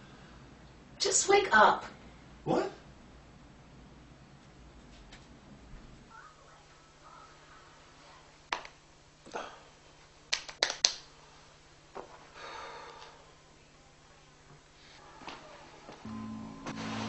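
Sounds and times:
man slapping his cheeks: 10.3s - 11.0s.

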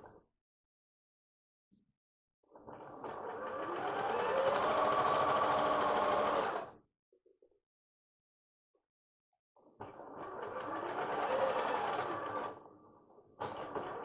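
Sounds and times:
sewing machine stitching: 3.0s - 6.7s, 10.0s - 12.6s.

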